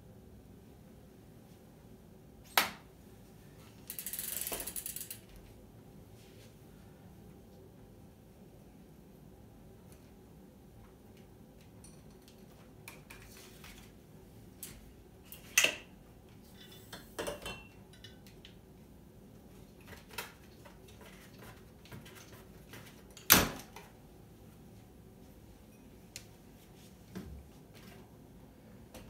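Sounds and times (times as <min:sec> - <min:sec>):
folding bike clicks and rattles: 0:03.8 - 0:05.3.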